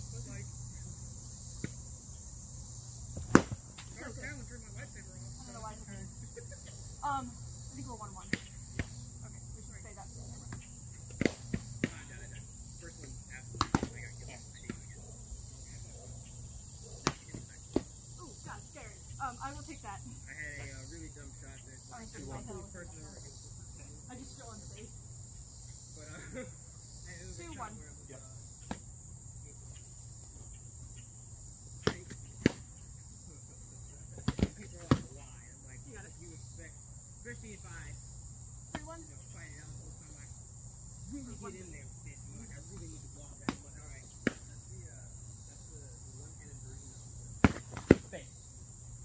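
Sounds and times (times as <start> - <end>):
insects droning: 0.0 - 49.0
foam swords striking: 3.2 - 3.6.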